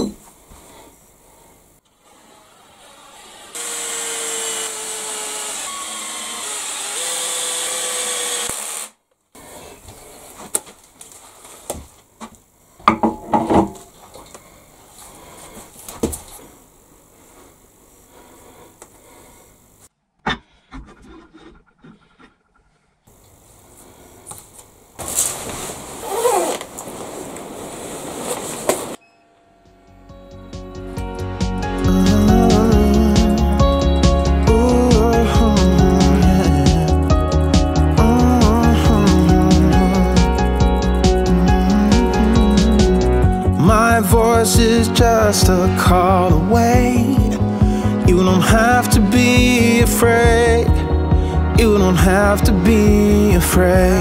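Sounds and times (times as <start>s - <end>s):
power drill driving screws: 2.0s - 9.0s
jacket rustling: 25.0s - 29.0s.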